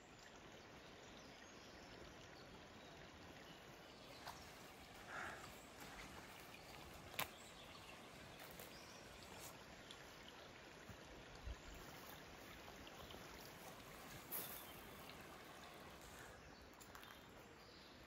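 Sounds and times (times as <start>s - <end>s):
faint background hiss: 0.0s - 18.0s.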